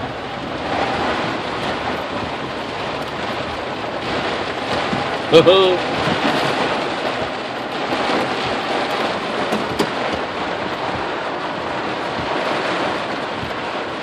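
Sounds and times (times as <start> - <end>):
heavy rain on car roof: 0.0 - 14.0.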